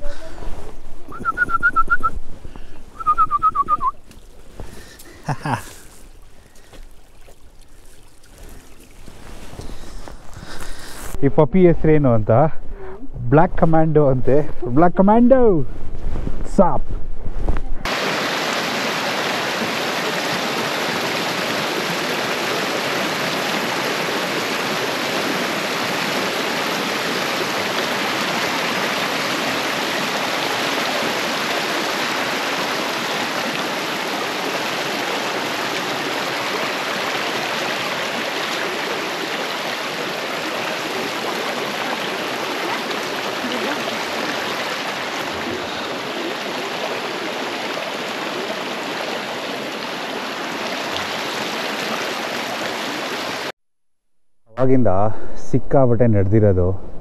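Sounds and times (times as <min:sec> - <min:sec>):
fast-flowing water rushing: 0:03.0 - 0:11.2, 0:17.8 - 0:53.5.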